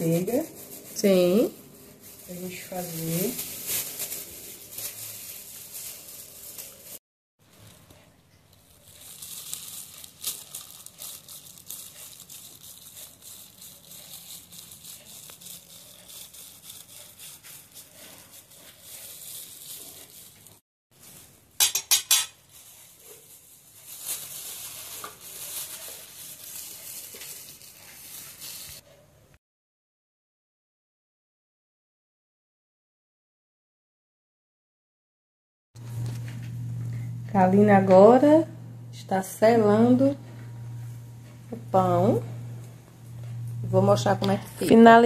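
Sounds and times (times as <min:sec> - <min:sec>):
knife sawing through bread: 0:12.8 - 0:20.4.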